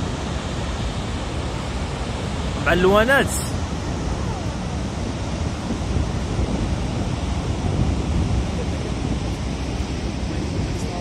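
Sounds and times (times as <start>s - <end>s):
waterfall rushing: 0.0s - 11.0s
wind buffeting microphone: 3.4s - 11.0s.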